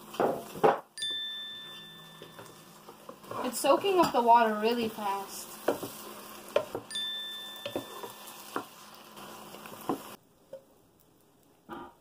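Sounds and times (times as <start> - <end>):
vegetables sizzling in pan: 0.0 - 10.8
spatula scraping and knocking: 2.2 - 4.2, 5.6 - 6.9.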